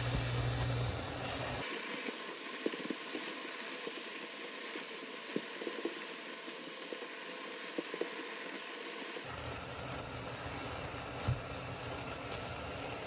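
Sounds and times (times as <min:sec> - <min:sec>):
food sizzling in a pan: 0:01.4 - 0:09.3.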